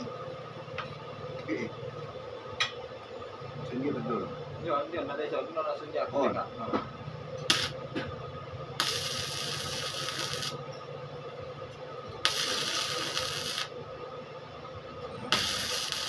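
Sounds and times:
steady low hum: 0.0 - 16.0
welding arc crackling and hissing: 7.4 - 7.9, 8.8 - 10.6, 12.2 - 13.8, 15.3 - 16.0.

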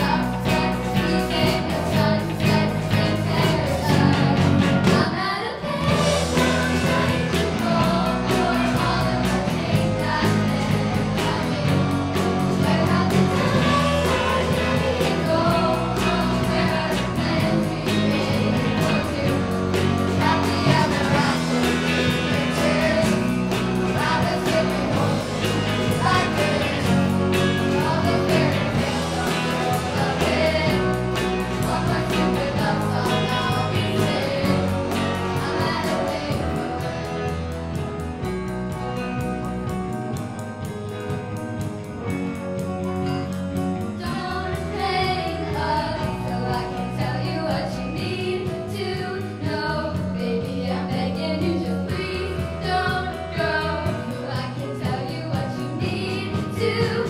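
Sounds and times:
children's choir singing: 0.0 - 37.5, 44.0 - 57.0
singers singing: 0.0 - 37.8
live rock band playing: 0.0 - 57.0.

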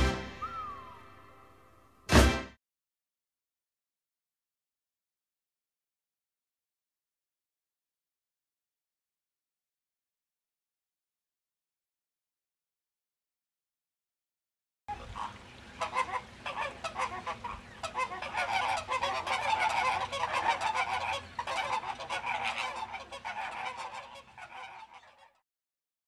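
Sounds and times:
flamingos calling: 14.9 - 25.4.

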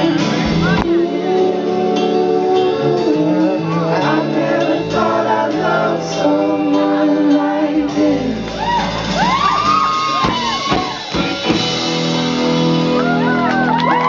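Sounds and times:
acoustic guitar: 0.0 - 14.0
men singing long held notes: 0.8 - 8.8.

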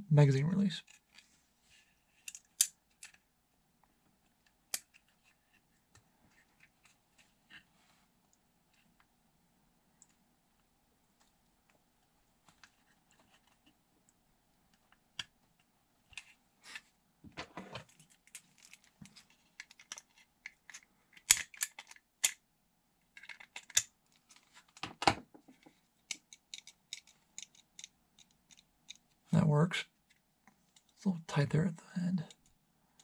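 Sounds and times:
plastic clicks: 23.1 - 29.0.

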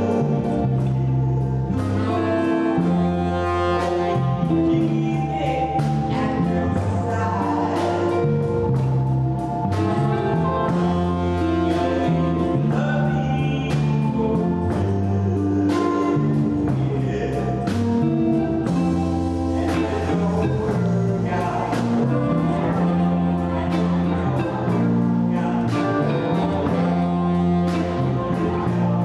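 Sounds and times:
drum kit and cymbals: 0.0 - 29.0
electric bass: 0.0 - 29.0
electric guitar: 0.0 - 29.0
keyboard: 0.0 - 29.0
saxophone lead: 0.0 - 29.0.

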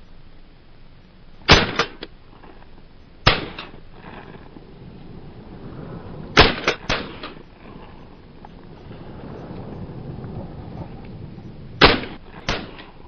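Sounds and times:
shotgun shots: 1.5 - 2.1, 3.2 - 3.8, 6.3 - 7.4, 11.8 - 13.0
faint cracks: 1.5 - 13.0.

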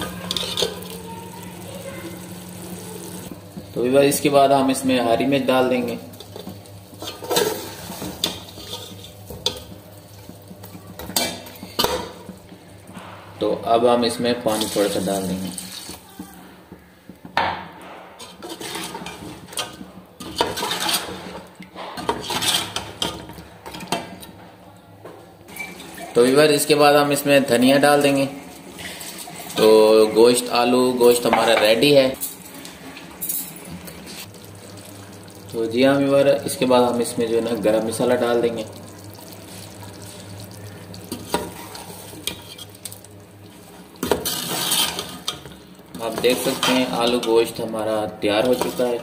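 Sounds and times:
ladle scraping metal pot: 0.0 - 0.9, 6.2 - 9.6, 18.2 - 24.0, 44.0 - 47.3.

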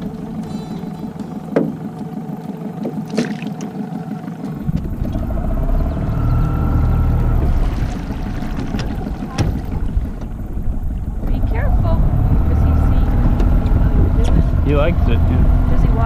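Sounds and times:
sharp knocks: 0.0 - 2.1, 7.4 - 10.4
outboard motor running: 0.0 - 16.0
water churning along hull: 0.0 - 16.0.

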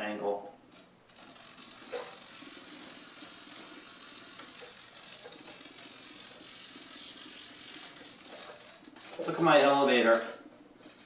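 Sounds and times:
small servos whining: 1.1 - 9.7.

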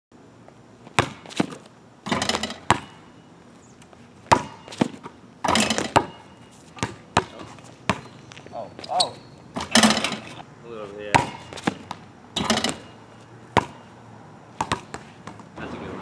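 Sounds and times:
basketball bouncing on asphalt: 0.4 - 3.3, 3.9 - 10.4, 11.0 - 15.6
sneakers scuffing on pavement: 3.4 - 9.7, 13.0 - 16.0.

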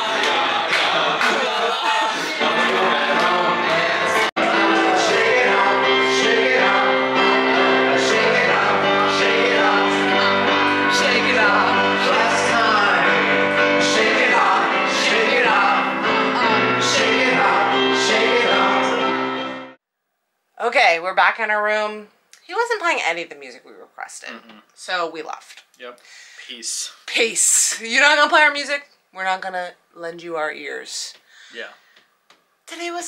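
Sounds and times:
man singing: 0.0 - 13.2
keyboard chords: 0.0 - 19.8.

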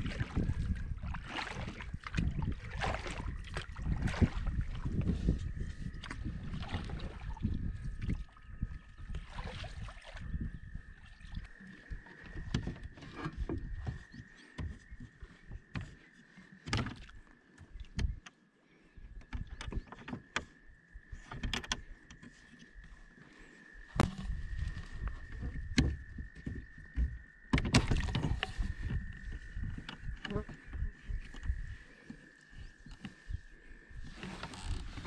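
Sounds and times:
paddle knocking against hull: 0.0 - 8.2, 11.5 - 18.3, 24.0 - 32.2
paddle splashing in water: 0.0 - 18.2, 23.3 - 35.0.

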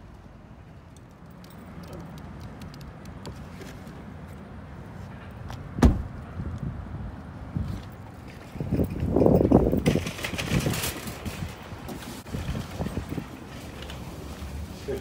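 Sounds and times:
sharp thump: 5.8 - 6.1.

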